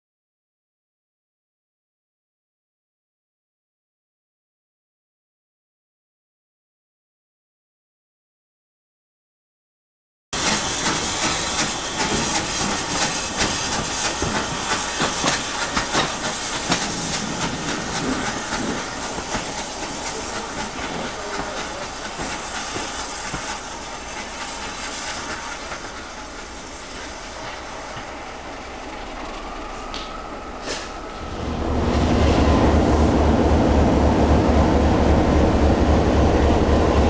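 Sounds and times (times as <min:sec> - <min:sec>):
locomotive steam hissing: 0:10.4 - 0:37.0.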